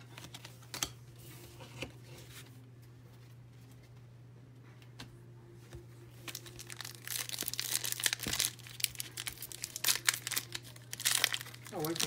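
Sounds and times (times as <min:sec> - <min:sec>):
plastic wrapper crinkling and tearing: 0:06.2 - 0:12.0.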